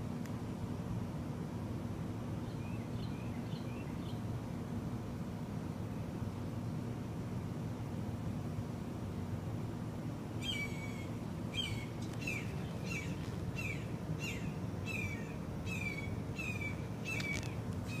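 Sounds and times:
low background rumble: 0.0s - 18.0s
bird calling: 10.4s - 18.0s.

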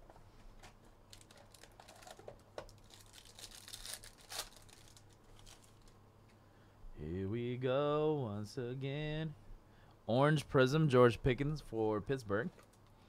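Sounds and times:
foil wrapper crinkling and tearing: 1.1s - 6.0s.

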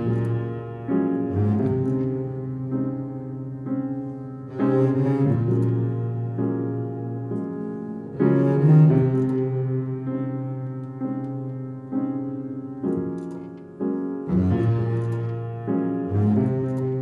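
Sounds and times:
bowed double bass: 0.0s - 3.6s, 4.4s - 10.6s, 14.2s - 17.0s
piano chords: 0.0s - 17.0s.

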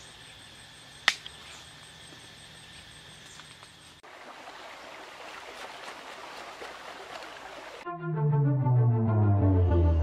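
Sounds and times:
stream water running: 3.3s - 7.8s.

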